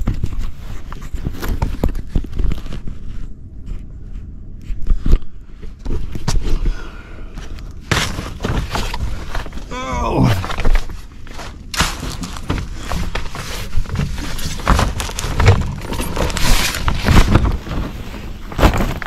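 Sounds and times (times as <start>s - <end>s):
plastic sheeting crinkling: 10.6s - 19.0s.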